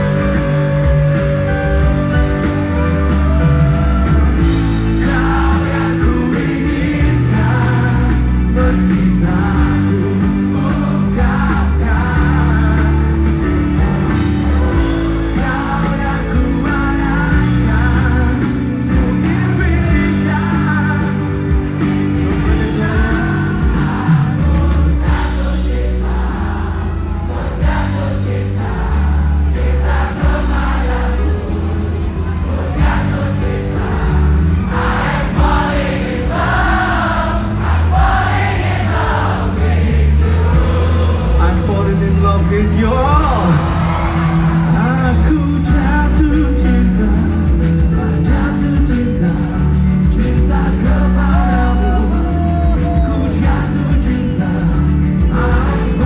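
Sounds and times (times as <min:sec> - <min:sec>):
person singing: 0:00.0 - 0:26.1, 0:40.4 - 0:56.0
pop-rock band playing live: 0:00.0 - 0:56.0
sustained bass notes: 0:00.0 - 0:56.0.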